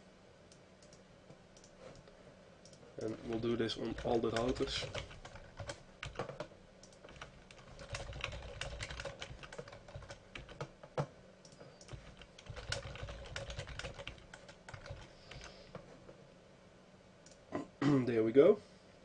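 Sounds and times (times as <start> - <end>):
typing on computer keyboard: 2.6 - 15.5.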